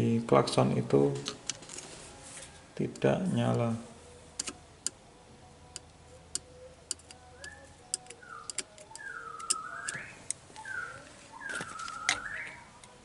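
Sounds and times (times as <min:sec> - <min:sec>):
metal probe clicking on terminals: 0:04.3 - 0:05.0, 0:05.7 - 0:10.8.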